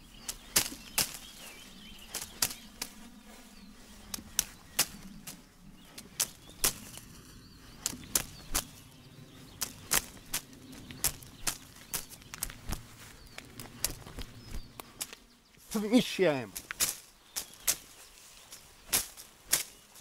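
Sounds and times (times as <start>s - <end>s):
punches snapping: 0.3s - 1.3s, 2.1s - 3.0s, 4.1s - 5.4s, 6.0s - 7.0s, 7.8s - 8.7s, 9.6s - 12.8s, 13.6s - 15.2s, 18.8s - 19.8s.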